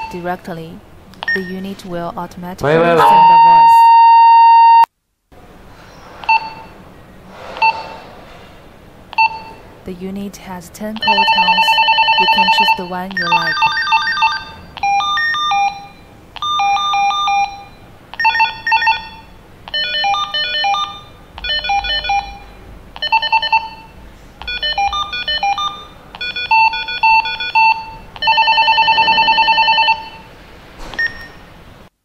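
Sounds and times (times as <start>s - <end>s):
walkie-talkie beep melodies: 3.0s - 4.0s.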